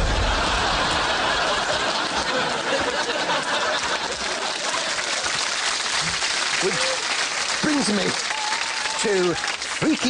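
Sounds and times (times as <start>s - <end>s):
audience laughing: 0.0s - 5.4s.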